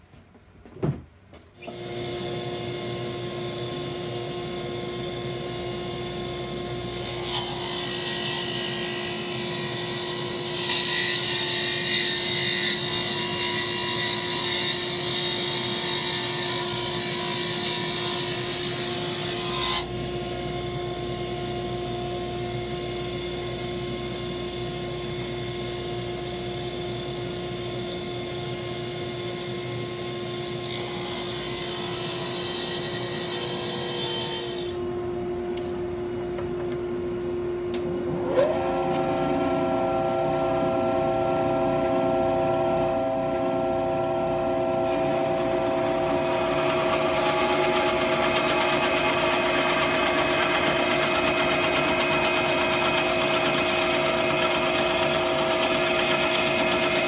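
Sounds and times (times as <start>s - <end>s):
table saw whining: 1.6s - 35.0s, 38.1s - 57.0s
saw blade rasping through wood: 44.8s - 57.0s.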